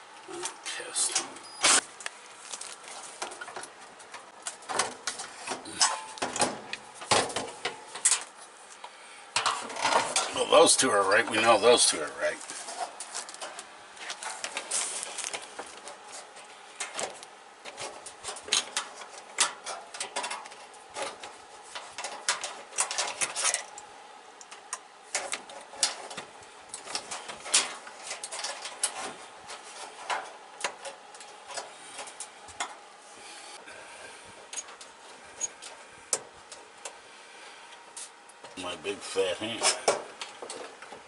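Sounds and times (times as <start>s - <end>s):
hands handling metal and plastic parts: 1.8s - 10.4s, 12.3s - 32.8s.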